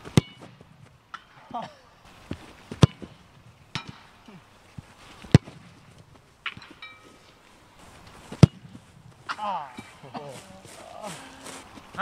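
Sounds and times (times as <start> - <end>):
football being kicked: 0.0 - 0.9, 2.7 - 4.0, 5.3 - 5.9, 8.3 - 8.8.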